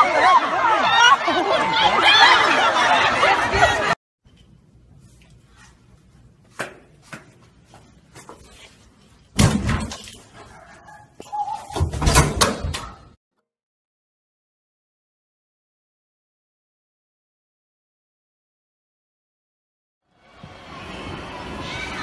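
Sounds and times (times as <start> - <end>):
door slamming: 9.4 - 10.0, 11.7 - 13.0.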